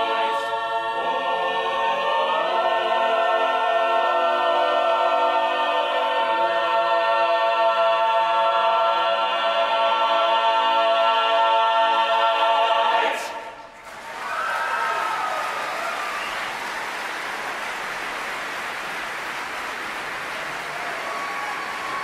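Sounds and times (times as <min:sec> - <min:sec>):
choir singing a sustained chord: 0:00.0 - 0:13.6.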